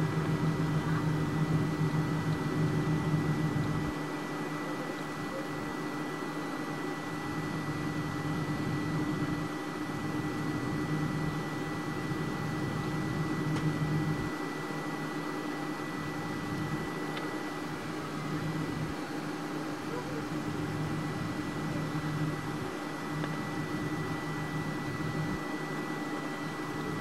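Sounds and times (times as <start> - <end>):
high engine whine: 0.0 - 27.0.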